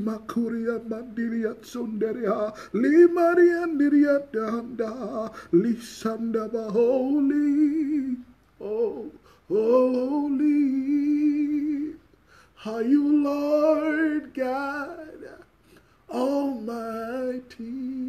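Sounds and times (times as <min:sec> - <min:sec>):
man singing unaccompanied: 0:00.0 - 0:18.0
man breathing: 0:05.3 - 0:05.6, 0:09.2 - 0:09.5, 0:12.1 - 0:12.6, 0:15.5 - 0:16.1.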